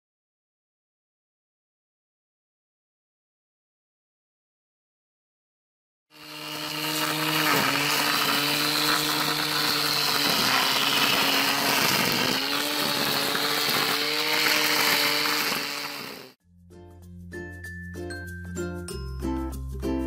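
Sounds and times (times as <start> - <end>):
angle grinder whining: 6.2 - 16.4.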